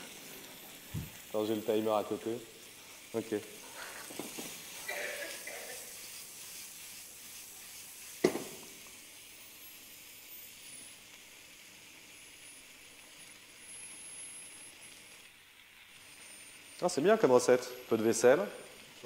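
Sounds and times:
food sizzling in a wok: 0:00.0 - 0:19.0
wok knocking on hob: 0:08.2 - 0:08.6.

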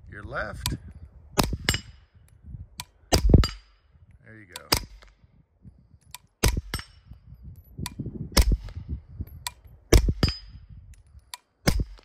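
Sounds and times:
suppressed gunshots: 0:06.4 - 0:07.0, 0:08.4 - 0:08.8, 0:09.9 - 0:10.5, 0:11.6 - 0:12.0
light metallic clicks: 0:10.9 - 0:11.5.

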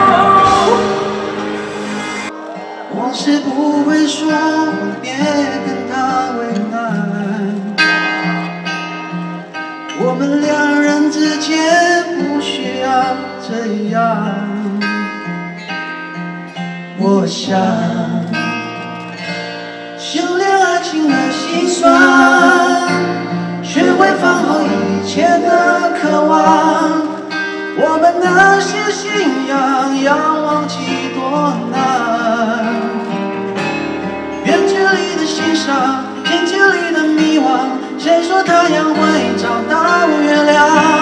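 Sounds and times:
strummed acoustic guitar: 0:00.0 - 0:41.0
man singing a slow ballad: 0:02.8 - 0:07.9, 0:09.9 - 0:15.4, 0:16.9 - 0:18.6, 0:20.0 - 0:33.2, 0:34.4 - 0:41.0.

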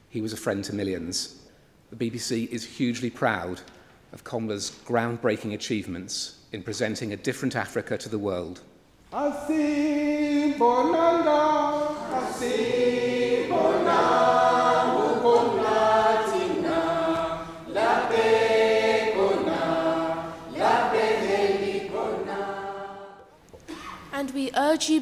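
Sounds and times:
mixed choir singing: 0:10.3 - 0:23.3.

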